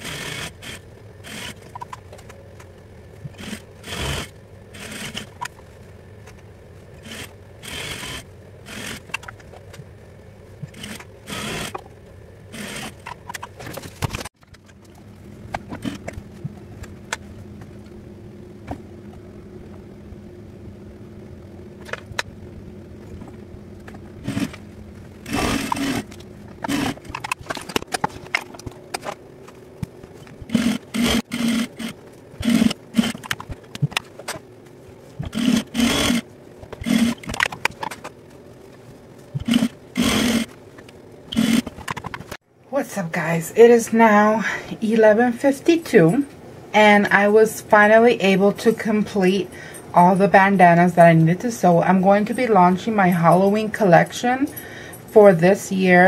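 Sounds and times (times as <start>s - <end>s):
motor hum: 0.0s - 45.3s
sewing machine stitching: 25.2s - 27.6s, 30.4s - 33.5s, 39.4s - 40.5s.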